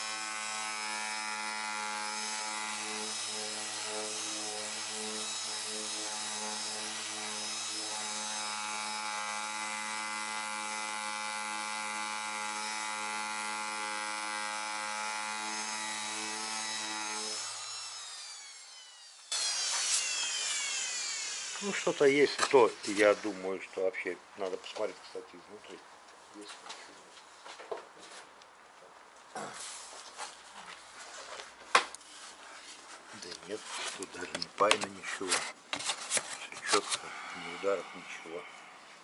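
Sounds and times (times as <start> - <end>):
orbital sander running: 0.0 - 22.1
loud whirring: 17.4 - 21.7.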